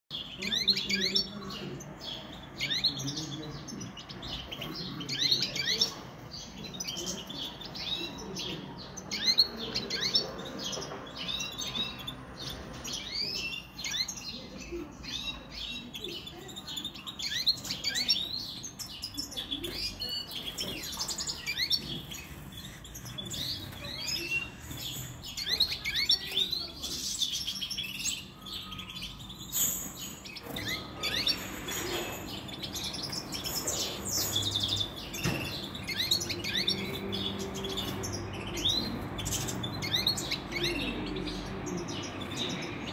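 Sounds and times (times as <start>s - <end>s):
goldfinches twittering and singing: 0.2s - 42.9s.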